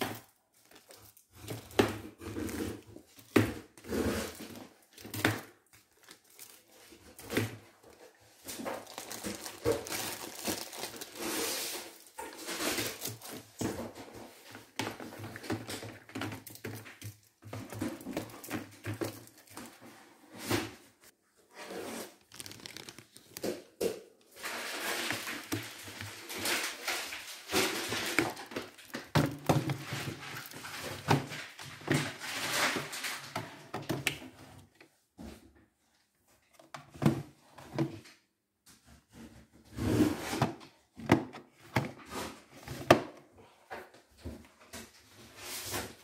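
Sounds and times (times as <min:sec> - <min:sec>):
packaging rustling: 0:00.2 - 0:03.2, 0:05.8 - 0:13.8, 0:21.9 - 0:33.3
cardboard boxes knocking in bin: 0:24.5 - 0:34.0.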